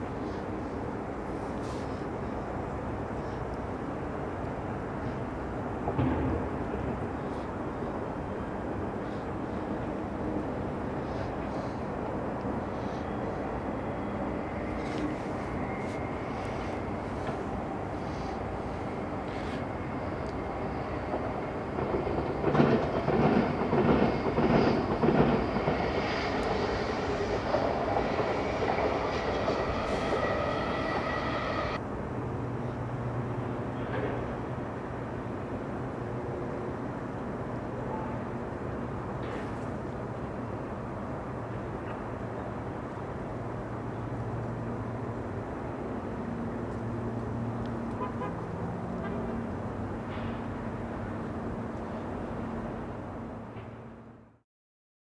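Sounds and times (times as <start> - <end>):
train high whine: 0.0 - 54.4
train wheels clattering on rails: 16.7 - 31.8.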